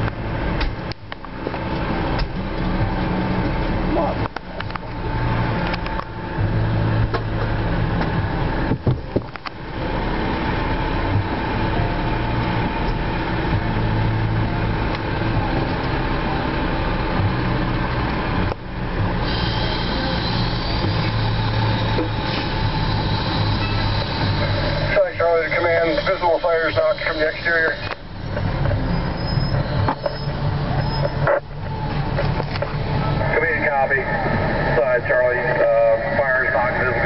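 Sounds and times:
diesel engines running: 0.0 - 37.0.

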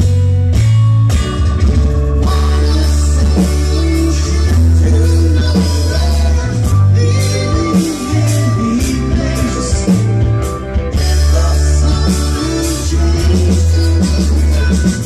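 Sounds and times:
drum kit with cymbal hits: 0.0 - 15.0
electric guitar: 0.0 - 15.0
held bass notes: 0.0 - 15.0
keyboards: 0.0 - 15.0.

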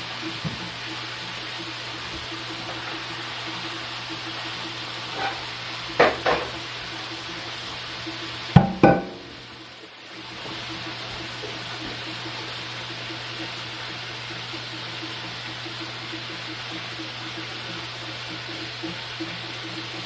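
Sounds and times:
patties sizzling in a frying pan: 0.0 - 20.0
range hood fan hiss: 0.0 - 20.0
utensil clinking against pan: 5.1 - 6.7
knocks: 6.0 - 6.6, 8.6 - 9.3.

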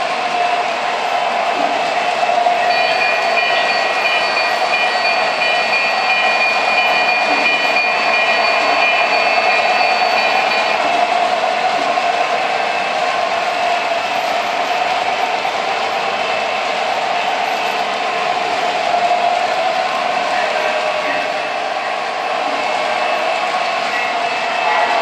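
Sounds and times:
high ringing tones: 2.7 - 11.0.

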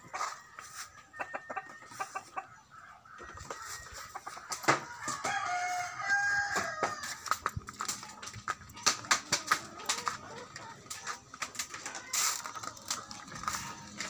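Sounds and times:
chickens clucking: 0.0 - 14.0
rooster crowing: 4.9 - 7.3.

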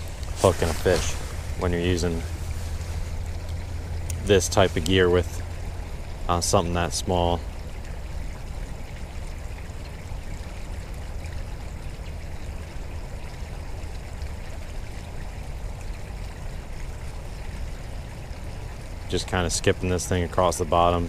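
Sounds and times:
creek water rushing: 0.0 - 21.0.

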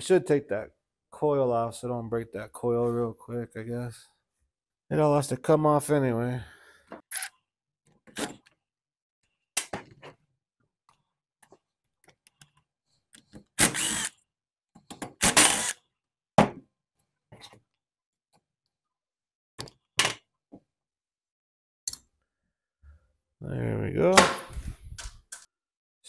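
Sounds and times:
cordless drill bursts: 13.6 - 14.1, 15.2 - 15.8.

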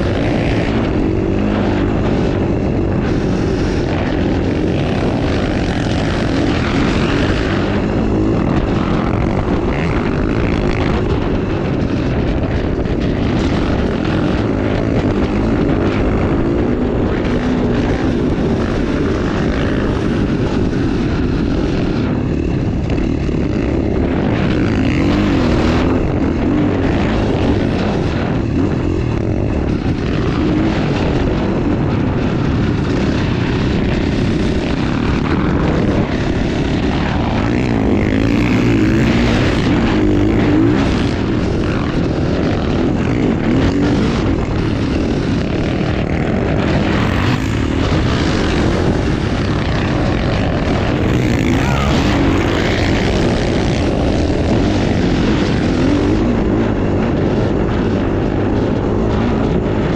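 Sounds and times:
dirt bike engine revving: 0.0 - 59.9
wind rushing over microphone: 0.0 - 59.9.

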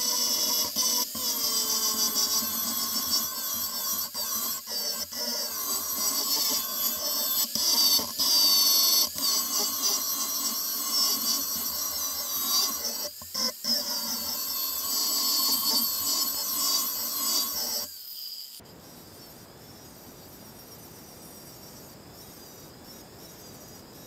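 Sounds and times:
angle grinder cutting steel: 0.0 - 18.6.

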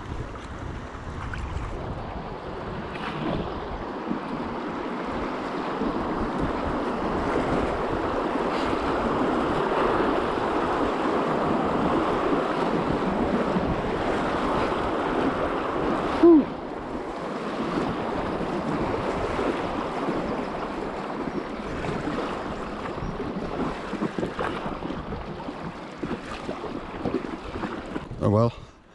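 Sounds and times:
wind buffeting microphone: 0.0 - 28.9.

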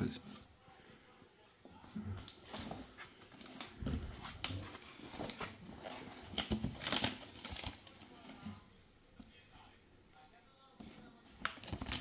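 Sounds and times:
cardboard parcel handling: 2.1 - 8.7, 10.8 - 12.0.

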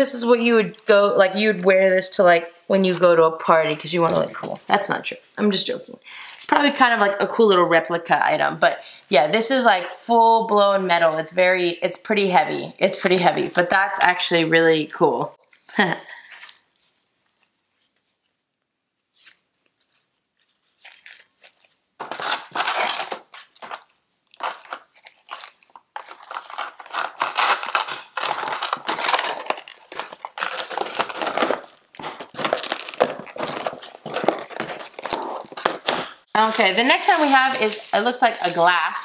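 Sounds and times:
packaging crinkling: 15.4 - 39.0.

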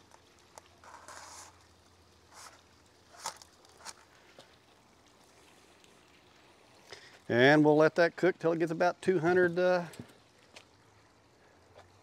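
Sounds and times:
soft rustles of foil: 0.0 - 7.3.

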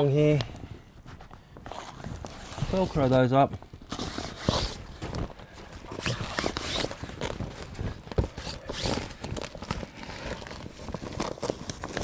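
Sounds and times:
canvas rustling and scraping: 1.0 - 12.0
velcro ripping: 1.7 - 3.1, 3.9 - 4.9, 5.9 - 7.7, 8.3 - 12.0.

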